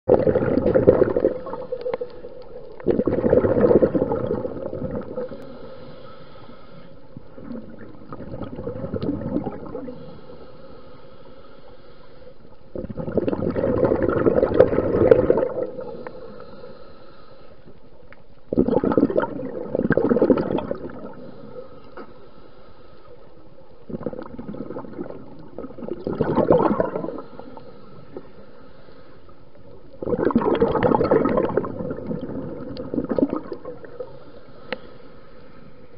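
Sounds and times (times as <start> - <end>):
underwater bubbling rush: 0.1 - 5.6, 7.1 - 10.4, 12.6 - 16.6, 18.5 - 21.6, 23.5 - 28.5, 29.6 - 34.3
steady underwater noise: 0.1 - 35.9.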